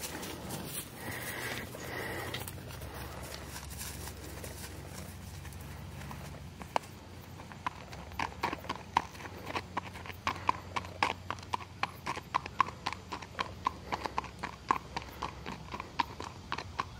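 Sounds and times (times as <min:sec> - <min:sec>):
horse hooves on paved road: 0:00.0 - 0:16.9.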